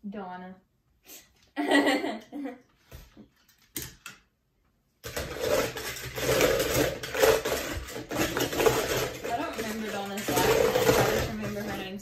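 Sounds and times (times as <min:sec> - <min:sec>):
toy cars clattering in plastic bowl: 0:05.0 - 0:12.0.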